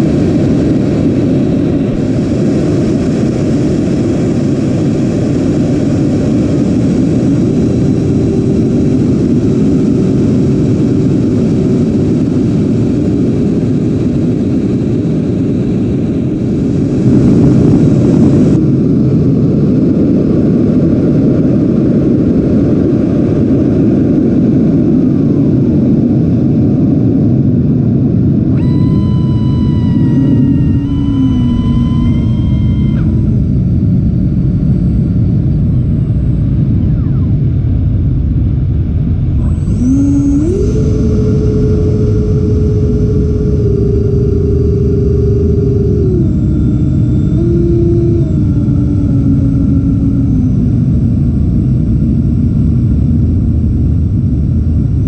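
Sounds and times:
faint steady whine: 0.0 - 55.0
rc jet fan rushing noise: 28.2 - 36.0, 39.0 - 53.6.

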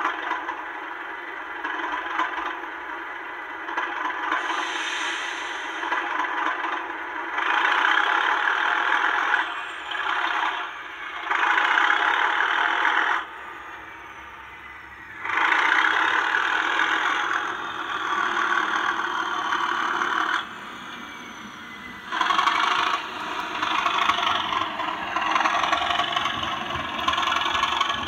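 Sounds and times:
model diesel locomotive engine: 0.0 - 28.0.

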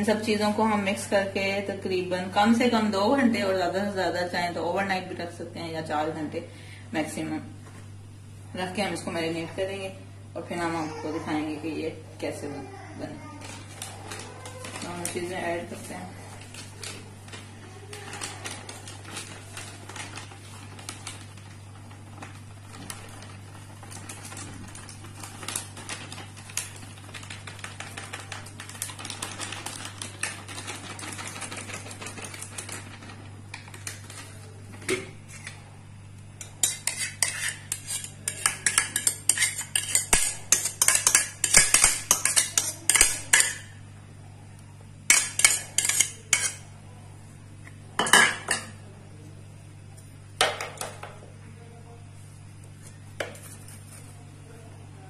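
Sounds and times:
plastic bag crinkling: 13.3 - 34.6
metal utensil scraping a bowl: 36.4 - 43.7, 45.1 - 46.6
soft handling of food: 51.5 - 55.0.

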